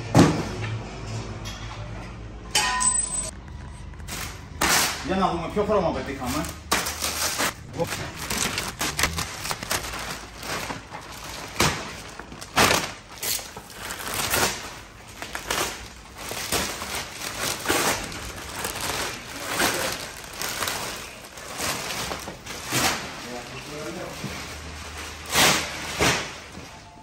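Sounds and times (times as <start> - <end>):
plastic cover crinkling: 6.1 - 25.3.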